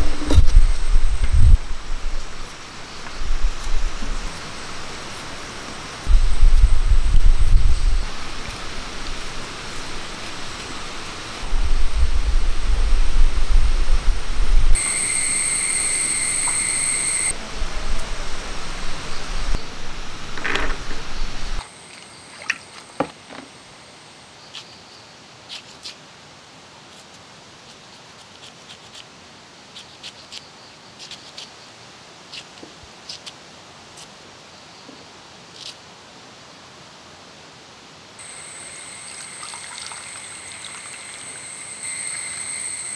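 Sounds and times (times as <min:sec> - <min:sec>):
heavy low rumble: 0:00.0 - 0:10.5, 0:11.4 - 0:14.9, 0:17.3 - 0:21.6
high-pitched buzz: 0:00.0 - 0:21.6, 0:38.2 - 0:42.9.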